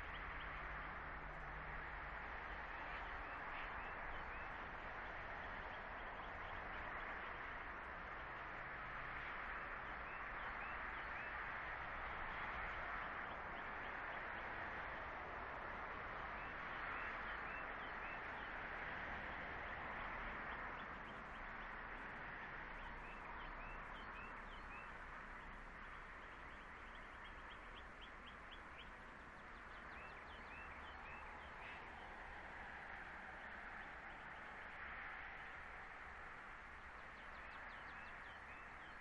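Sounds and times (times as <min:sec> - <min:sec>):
steady outdoor hiss: 0:00.0 - 0:39.0
small birds chirping: 0:20.5 - 0:32.6.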